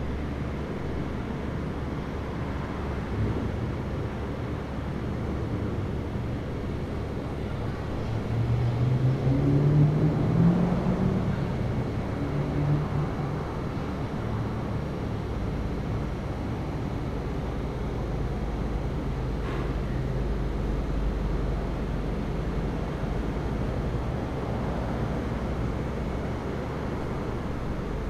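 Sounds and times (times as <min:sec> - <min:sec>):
rumbling background noise: 0:00.0 - 0:28.0
engine hum rising in pitch: 0:06.8 - 0:19.6.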